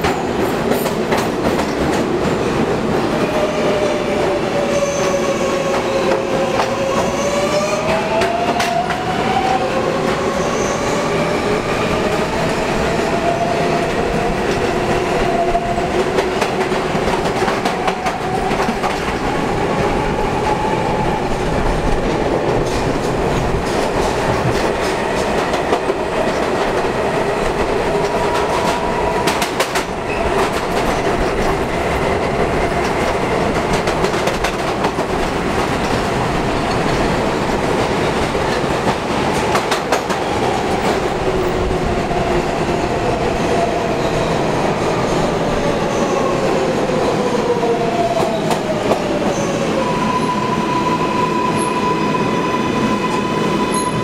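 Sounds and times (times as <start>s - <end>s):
subway wheels rumbling on rail: 0.0s - 54.0s.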